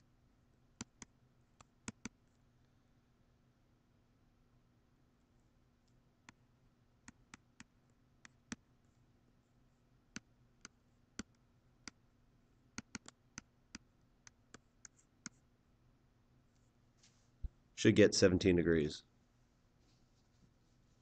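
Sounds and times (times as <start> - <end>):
faint low hum: 0.0 - 21.0
stylus tapping on tablet screen: 0.8 - 2.2, 12.7 - 15.4.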